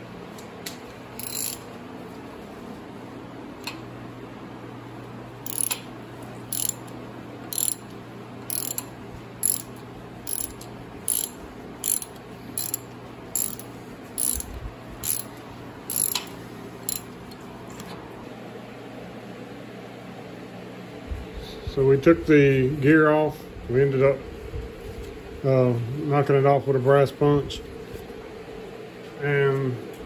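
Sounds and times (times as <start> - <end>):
ratchet wrench clicking: 1.2 - 1.7, 5.4 - 5.8, 6.5 - 7.9, 8.5 - 15.3, 15.9 - 17.1.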